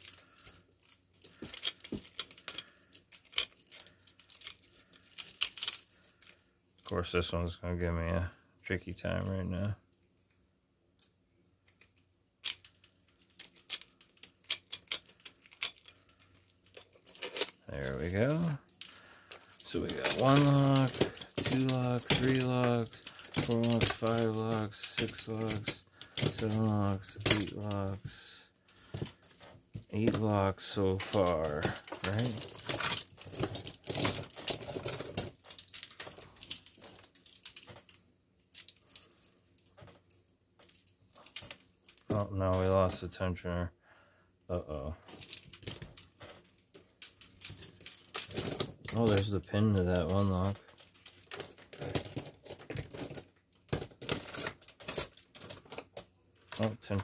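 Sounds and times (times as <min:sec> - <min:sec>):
lock pick clicking and scratching: 0:00.0 - 0:05.9, 0:50.6 - 0:56.6
padlocks and handcuffs rattling: 0:00.0 - 0:06.9, 0:11.0 - 0:43.1, 0:45.0 - 0:57.0.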